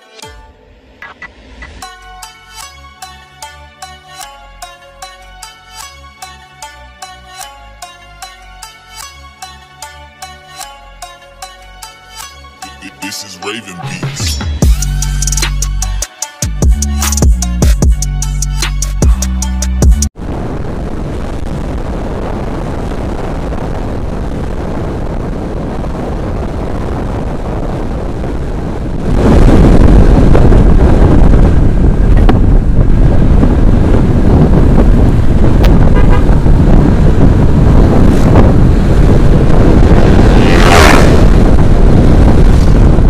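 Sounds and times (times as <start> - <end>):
road and engine noise: 0.0 - 16.0, 16.7 - 43.0
wind rushing over microphone: 20.2 - 43.0
vehicle horn: 35.7 - 36.6.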